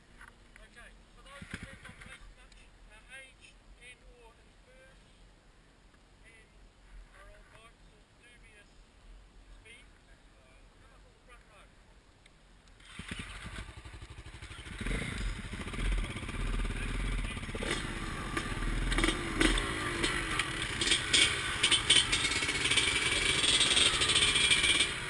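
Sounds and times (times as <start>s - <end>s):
dirt bike engines revving: 1.2s - 2.4s, 12.8s - 25.0s
sharp clacks: 17.6s - 24.9s.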